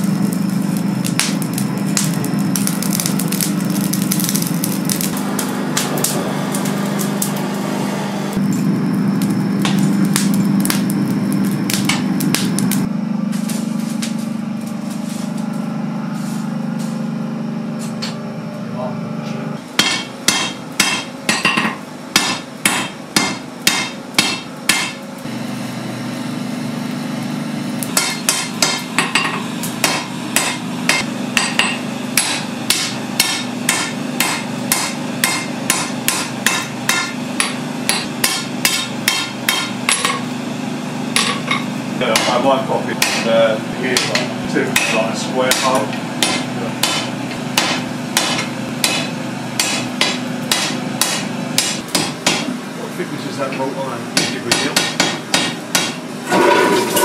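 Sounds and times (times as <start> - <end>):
hammer striking steel on anvil: 19.8 - 25.0, 27.8 - 40.3, 41.2 - 43.3, 44.0 - 52.5, 54.2 - 57.0.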